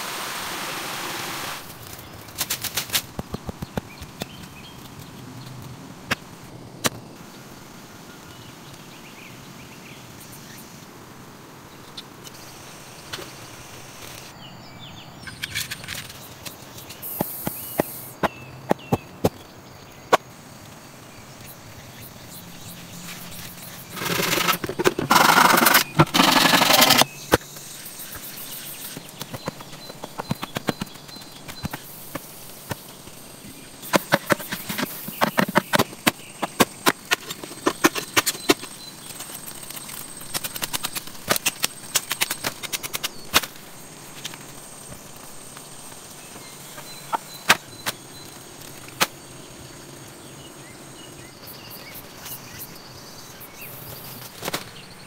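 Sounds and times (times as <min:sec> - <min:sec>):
soil scraping and rustling: 0:22.3 - 0:49.1.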